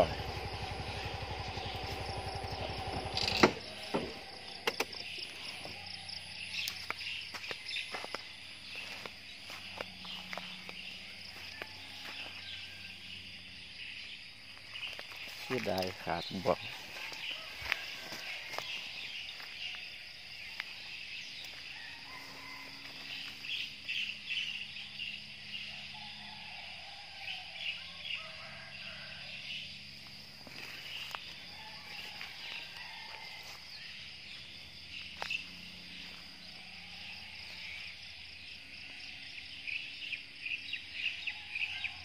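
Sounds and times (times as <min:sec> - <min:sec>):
insect chirping bursts: 0:00.0 - 0:11.7
crickets chirping: 0:00.0 - 0:42.0
small motorcycle engine idling: 0:00.0 - 0:42.0
footsteps through grass: 0:06.4 - 0:13.0, 0:14.5 - 0:23.6, 0:30.1 - 0:37.8.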